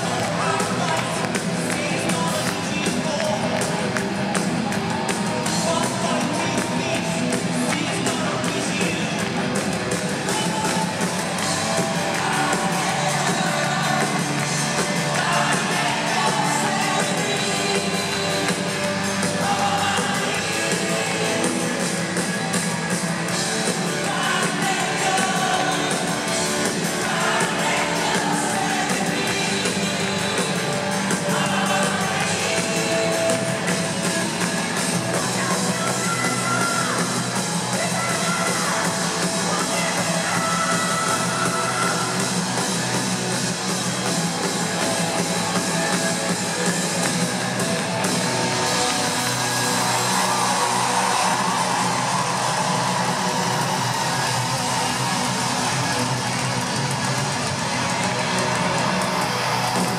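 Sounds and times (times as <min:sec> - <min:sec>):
man singing: 0:00.0 - 0:03.9, 0:05.4 - 0:09.6, 0:10.2 - 0:21.8, 0:23.6 - 0:37.1
live rock band: 0:00.0 - 0:59.9.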